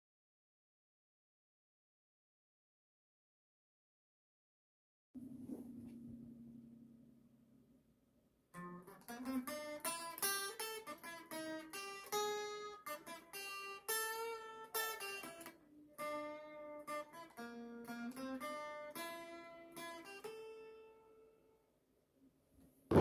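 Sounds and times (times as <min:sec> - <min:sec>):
guitar plucked notes and chords: 0:08.6 - 0:21.3.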